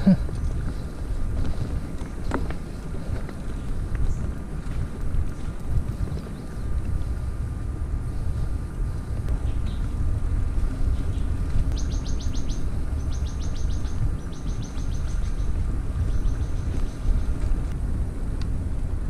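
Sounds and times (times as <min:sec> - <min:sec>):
bike tyres rolling on dirt: 0:00.0 - 0:19.0
wind rumble on microphone: 0:00.0 - 0:19.0
bird trilling high chirps: 0:11.8 - 0:17.2.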